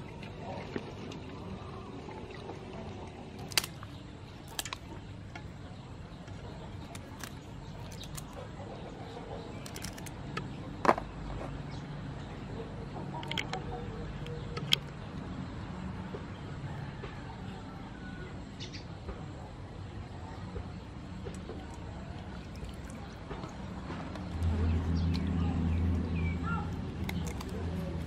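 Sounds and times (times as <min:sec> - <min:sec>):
low steady background noise: 0:00.0 - 0:28.0
scissors snipping prawn shells: 0:03.4 - 0:04.9, 0:06.8 - 0:08.4, 0:09.5 - 0:10.2, 0:26.7 - 0:28.0.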